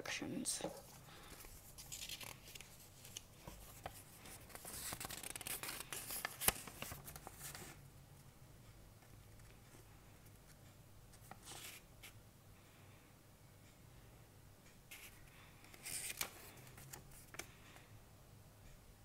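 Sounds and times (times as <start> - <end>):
paper leaflet rustling: 0.8 - 7.8, 14.9 - 17.5.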